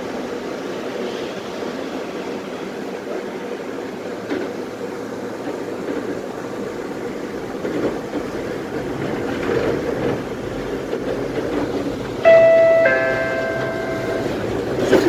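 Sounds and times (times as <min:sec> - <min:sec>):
tram wheels rumbling on rails: 0:00.0 - 0:15.0.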